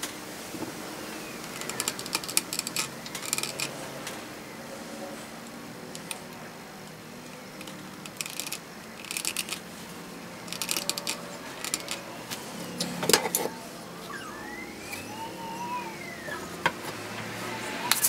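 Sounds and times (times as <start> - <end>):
small metal clicks and rattles: 1.4 - 3.8, 7.2 - 9.7, 10.4 - 12.0
faint siren wailing: 10.4 - 18.0.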